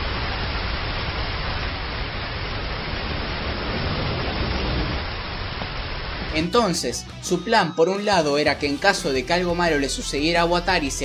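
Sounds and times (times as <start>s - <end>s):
heavy rain pouring: 0.0s - 7.6s.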